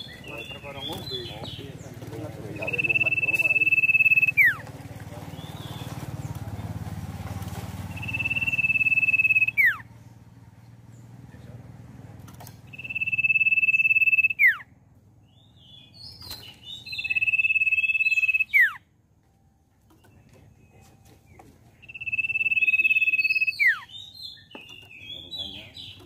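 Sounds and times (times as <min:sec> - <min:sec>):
bird whistling long notes: 0:02.6 - 0:04.6, 0:07.9 - 0:09.8, 0:12.7 - 0:14.7, 0:16.7 - 0:18.8, 0:21.8 - 0:24.4
short bird chirps: 0:07.9 - 0:09.8.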